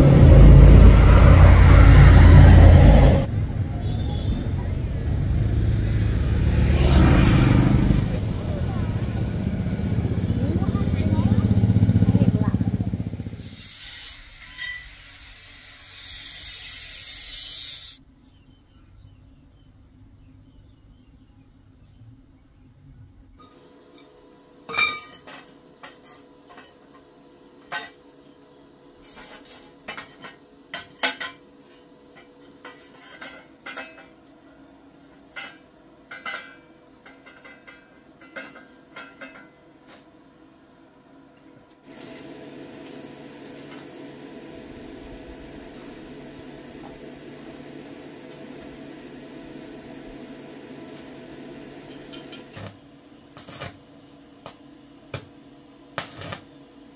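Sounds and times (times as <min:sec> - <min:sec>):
electric arc welder hissing: 0:13.2 - 0:18.0, 0:41.9 - 0:56.9.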